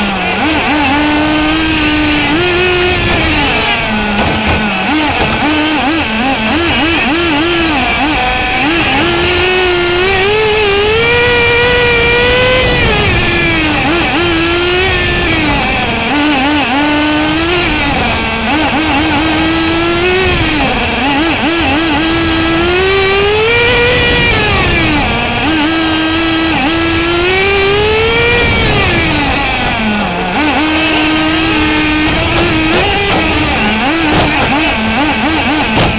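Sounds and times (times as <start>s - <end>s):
model car engine revving: 0.0s - 35.9s.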